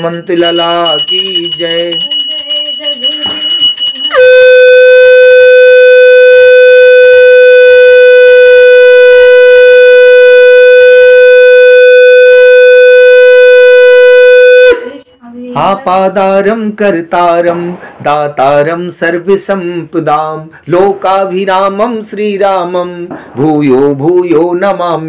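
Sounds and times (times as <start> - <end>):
conch shell blast: 4.1 - 14.9.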